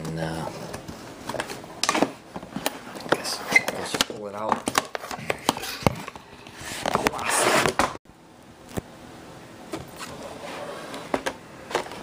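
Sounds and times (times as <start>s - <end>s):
rustling scrape: 5.0s - 8.0s, 10.0s - 11.2s.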